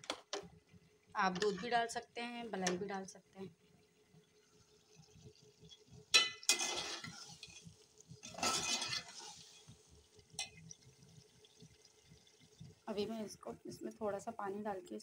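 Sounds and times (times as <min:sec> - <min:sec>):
spoon scraping metal pot: 0:01.3 - 0:01.8, 0:06.2 - 0:09.7.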